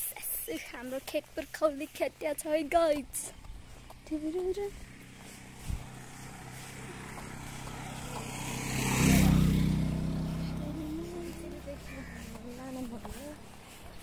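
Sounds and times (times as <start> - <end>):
vehicle engine passing by: 3.4 - 14.0.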